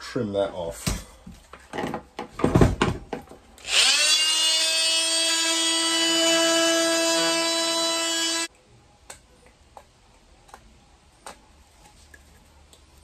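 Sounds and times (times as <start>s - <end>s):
oscillating multi-tool whine: 3.6s - 8.5s.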